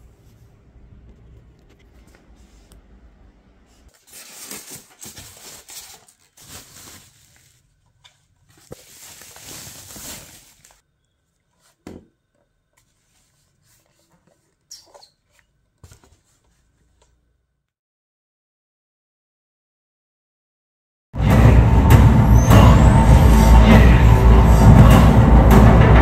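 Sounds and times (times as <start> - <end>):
hands rustling packing and plastic: 3.7 - 10.8, 11.4 - 17.2.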